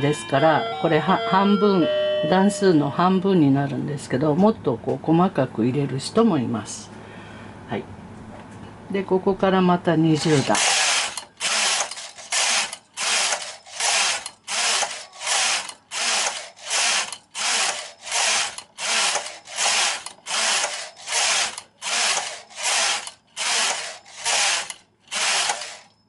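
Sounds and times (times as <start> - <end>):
knitting machine carriage clatter: 10.2 - 25.9.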